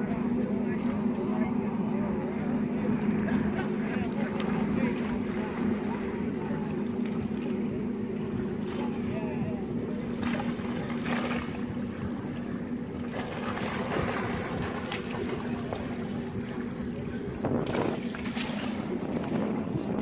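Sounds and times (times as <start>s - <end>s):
moving water: 0.0s - 20.0s
steady low hum: 0.0s - 20.0s
wind rumbling on microphone: 0.0s - 20.0s
fish splashing at surface: 17.6s - 19.3s.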